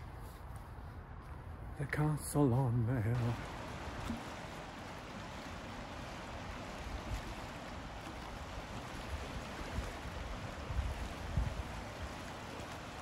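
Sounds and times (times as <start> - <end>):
sea waves washing: 2.4 - 13.0
wind buffeting microphone: 3.2 - 13.0.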